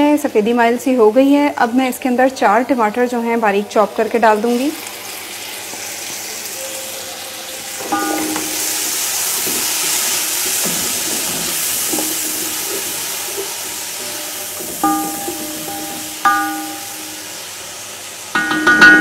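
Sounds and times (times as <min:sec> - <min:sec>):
vegetables frying in hot oil: 0:00.0 - 0:19.0.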